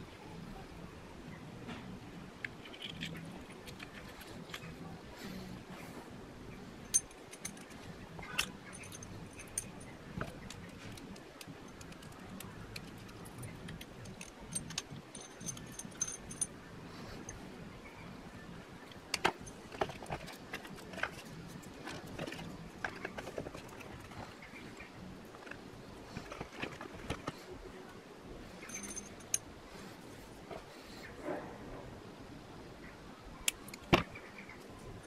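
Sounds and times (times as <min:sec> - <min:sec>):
light clicks clinks and rustles: 0:02.4 - 0:04.9, 0:06.8 - 0:17.4, 0:28.6 - 0:29.5.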